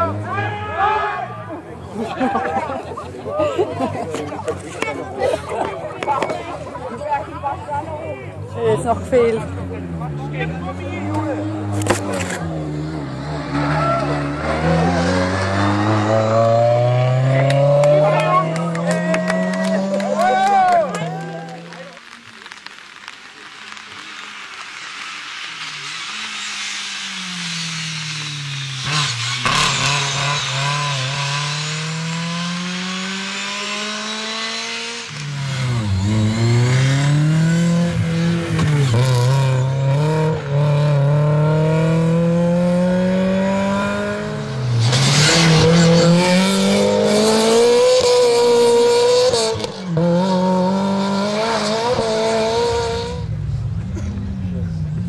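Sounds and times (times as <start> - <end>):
rally car engine revving: 0.0 - 0.7, 3.8 - 23.1, 23.7 - 55.0.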